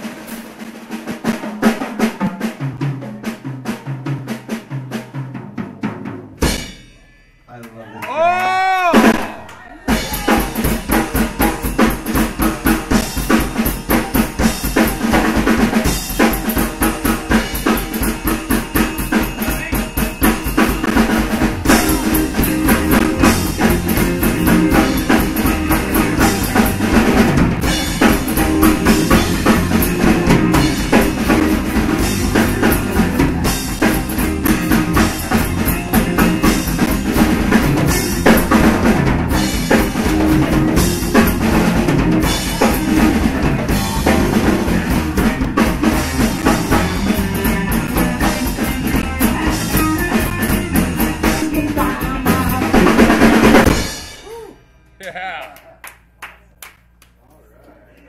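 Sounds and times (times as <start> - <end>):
drum kit beat: 0.0 - 7.6, 8.2 - 57.0
electric guitar: 9.9 - 54.3
electric bass: 10.0 - 54.4.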